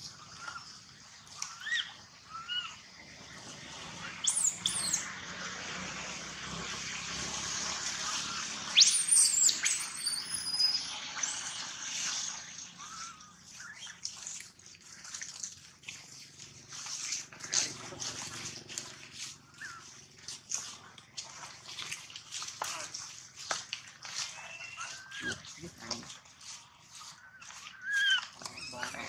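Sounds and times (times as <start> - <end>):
monkey squealing: 1.3 - 2.8, 4.0 - 5.1, 8.1 - 12.2, 12.8 - 14.0, 19.5 - 20.0, 24.2 - 25.7, 26.9 - 29.0
baby monkey whimpering: 27.8 - 29.0.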